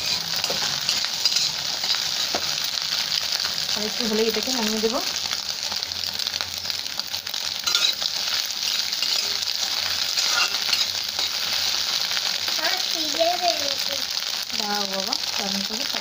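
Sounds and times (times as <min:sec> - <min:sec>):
metal spatula scraping pan: 0:00.0 - 0:02.7, 0:07.6 - 0:12.1
egg sizzling in hot oil: 0:00.0 - 0:16.0.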